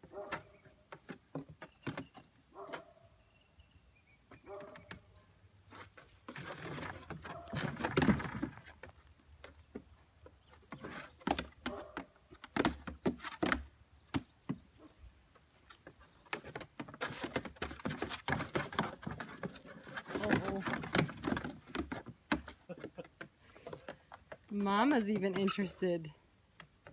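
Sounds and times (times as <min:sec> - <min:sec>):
goat hooves clattering on plywood: 0:00.0 - 0:03.0, 0:04.2 - 0:26.9.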